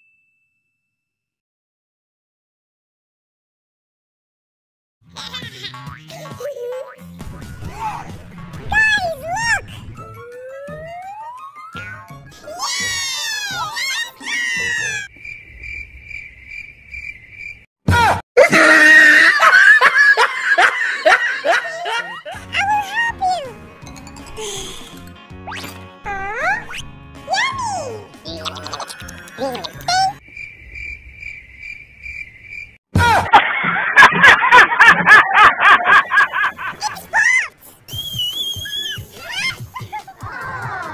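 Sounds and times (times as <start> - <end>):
falling sound effect: 8.5 - 12.3
cricket chirping sound effect: 15.1 - 17.7, 28.6 - 32.8.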